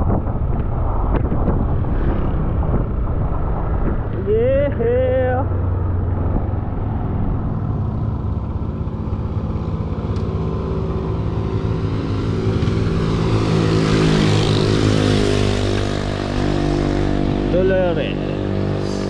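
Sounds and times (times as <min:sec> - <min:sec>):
wind and road noise: 0:00.0 - 0:19.0
scooter engine running: 0:05.8 - 0:19.0.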